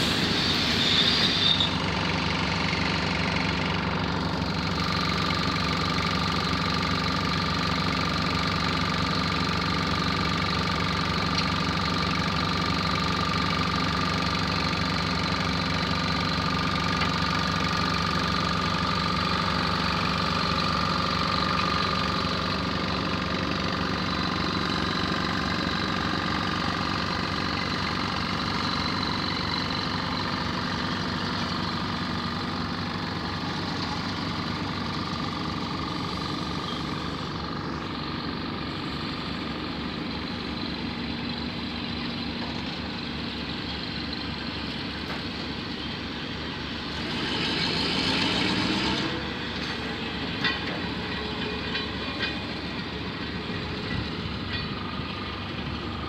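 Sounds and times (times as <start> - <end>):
thin whine: 0.0 - 2.0
locomotive engine idling: 0.0 - 47.1, 48.5 - 56.0.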